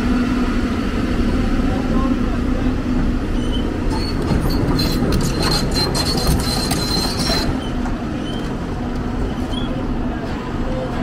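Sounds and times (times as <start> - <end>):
excavator diesel engine rumble: 0.0 - 11.0
steel tracks squealing and clicking: 3.2 - 10.9.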